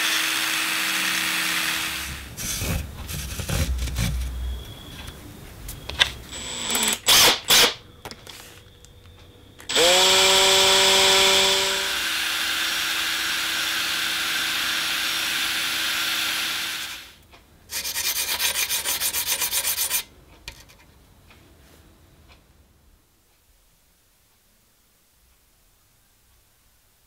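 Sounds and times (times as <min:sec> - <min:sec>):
electric drill with hole saw cutting: 0:00.0 - 0:02.6, 0:06.3 - 0:07.8, 0:09.7 - 0:17.2
quick rhythmic rubbing: 0:17.7 - 0:20.1.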